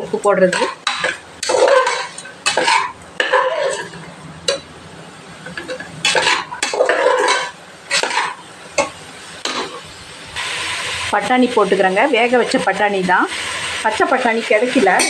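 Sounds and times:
vegetables sauteing in oil: 0.0 - 15.0
metal spatula scraping a pot: 0.5 - 4.0, 5.7 - 8.4.

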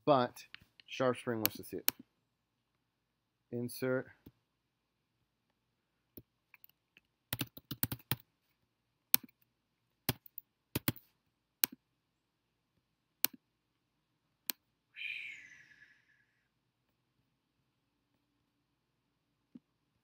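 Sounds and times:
computer keyboard typing: 7.3 - 8.2, 10.1 - 11.0.

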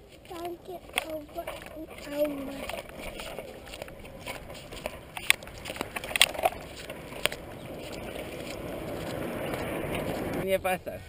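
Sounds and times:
bicycle rolling on concrete: 0.0 - 10.5
sharp clicks and knocks: 0.4 - 8.0.

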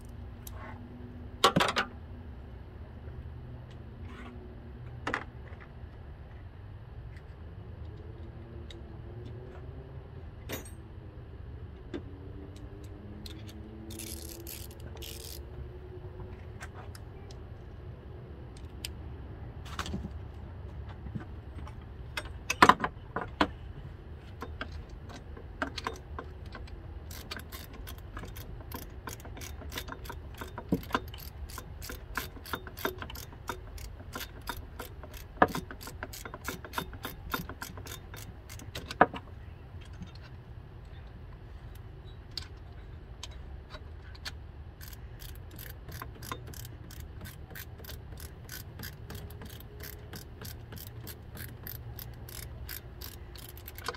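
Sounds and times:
ratchet wrench clicking: 12.8 - 15.5, 25.2 - 39.0, 43.2 - 53.9
metallic tool clicks and knocks: 24.4 - 40.3, 42.3 - 53.9.

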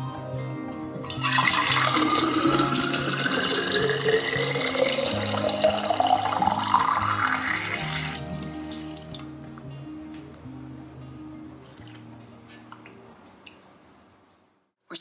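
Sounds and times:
background music: 0.0 - 13.4
water pouring into a bottle: 1.1 - 9.2.

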